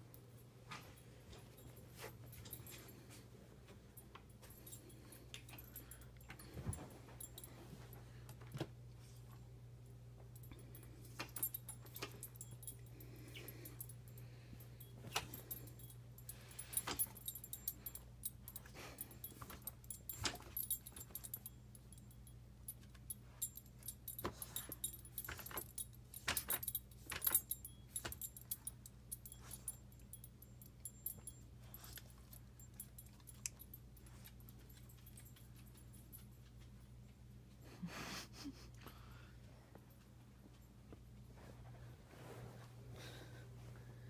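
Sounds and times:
collar tags jingling: 0:10.3 - 0:36.8.

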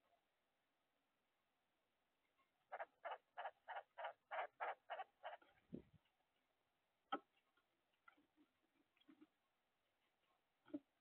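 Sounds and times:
woodpecker harsh notes: 0:02.7 - 0:05.6.

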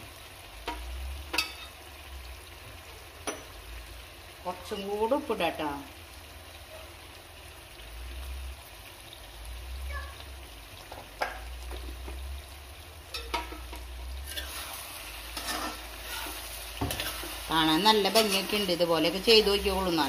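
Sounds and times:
light sizzle: 0:00.0 - 0:20.0
ladle scraping metal pan: 0:13.1 - 0:17.4.

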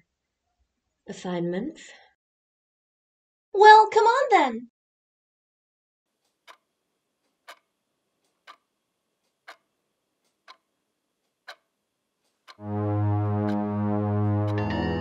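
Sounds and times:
clock ticking: 0:06.2 - 0:13.8
music with low held chord: 0:12.6 - 0:15.0.

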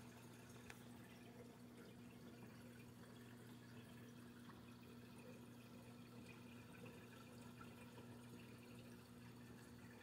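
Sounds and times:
faint aquarium pump hum: 0:00.0 - 0:10.0
water trickling and dripping: 0:00.0 - 0:10.0.

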